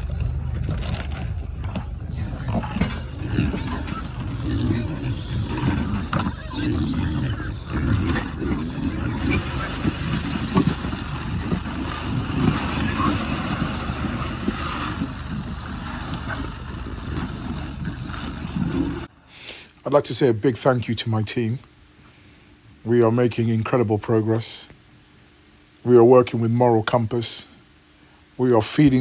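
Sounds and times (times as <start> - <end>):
pigs grunting: 0.0 - 19.7.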